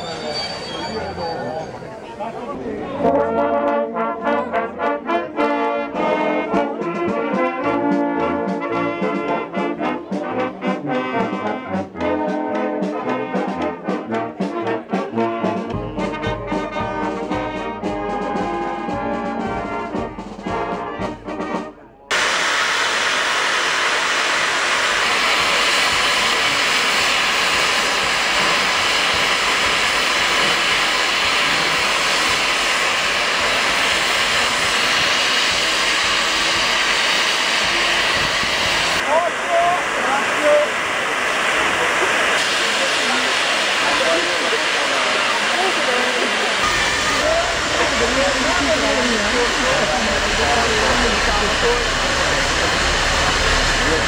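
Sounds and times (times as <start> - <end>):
steam locomotive hissing: 0.0 - 3.2, 4.9 - 54.0
brass band playing: 2.8 - 22.4, 45.2 - 54.0.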